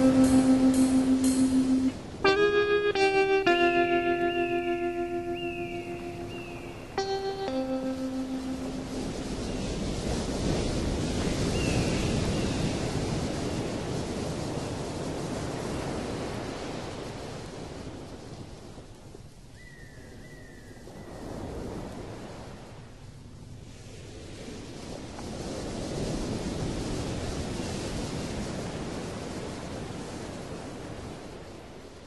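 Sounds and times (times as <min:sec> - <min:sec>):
held synth note: 0:00.0 - 0:09.9
surf-like noise: 0:00.0 - 0:19.5, 0:20.8 - 0:32.0.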